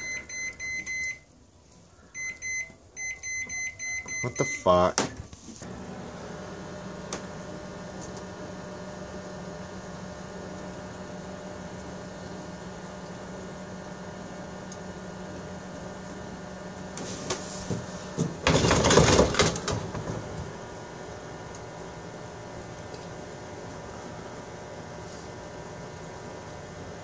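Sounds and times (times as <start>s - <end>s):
microwave oven humming: 5.6s - 27.0s.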